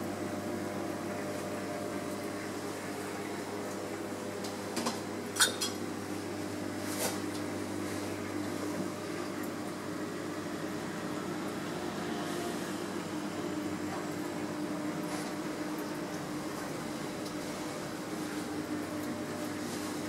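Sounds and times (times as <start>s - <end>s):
aquarium pump humming: 0.0s - 20.0s.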